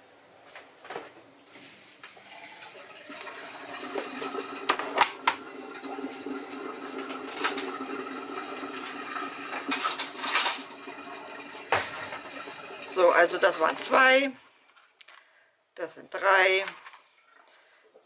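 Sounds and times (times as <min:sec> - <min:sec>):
kitchenware knocks and clatters: 0:08.9 - 0:10.9, 0:11.5 - 0:12.5
plastic tub set down: 0:11.7 - 0:12.3.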